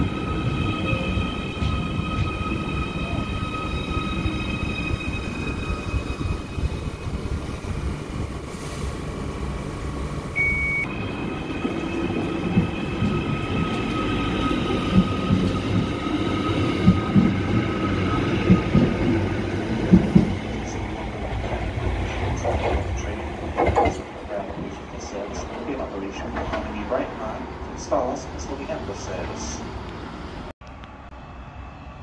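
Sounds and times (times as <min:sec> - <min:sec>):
electric train whine and rumble: 0:00.0 - 0:32.0
short beep: 0:10.4 - 0:10.9.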